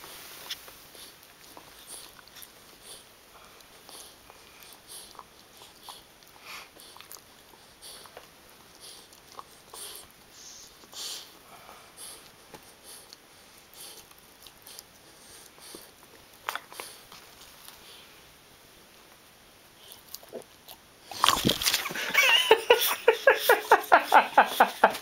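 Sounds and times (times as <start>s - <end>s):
puppy gnawing a chew stick: 0.4s - 11.0s, 12.0s - 18.0s, 19.8s - 21.9s.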